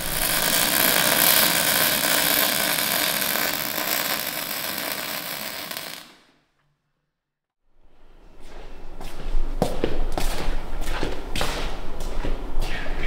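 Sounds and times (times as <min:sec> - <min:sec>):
welding arc crackling: 0:00.0 - 0:06.3.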